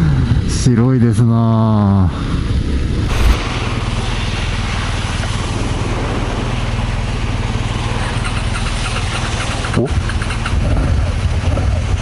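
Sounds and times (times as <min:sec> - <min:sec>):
loud thump: 0:02.8 - 0:04.0.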